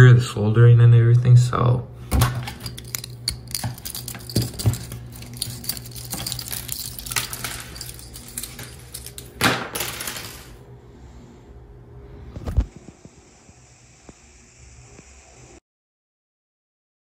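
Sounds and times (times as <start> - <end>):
steady low hum: 0.0 - 15.6
clinks of small metal parts: 2.4 - 10.6.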